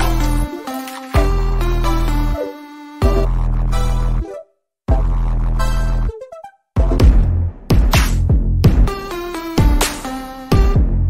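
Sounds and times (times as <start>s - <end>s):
held synth notes: 0.0s - 4.3s.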